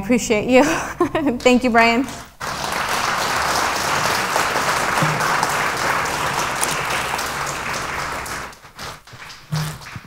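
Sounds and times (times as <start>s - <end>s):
audience applauding: 2.2s - 10.0s.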